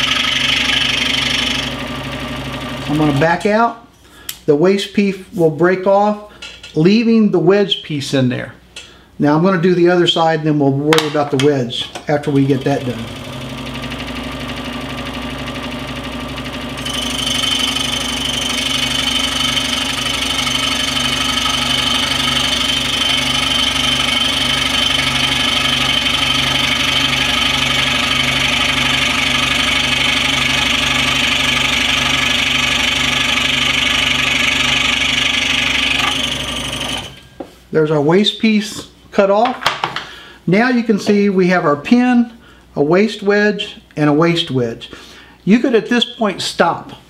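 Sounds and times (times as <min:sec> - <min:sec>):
scroll saw cutting wood: 0:00.0 - 0:03.3, 0:12.5 - 0:37.2.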